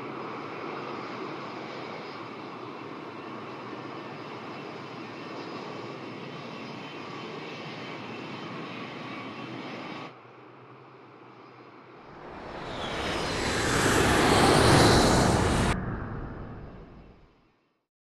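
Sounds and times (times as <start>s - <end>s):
faint high whine: 12.1s - 17.2s
aircraft engines roaring: 12.2s - 17.2s.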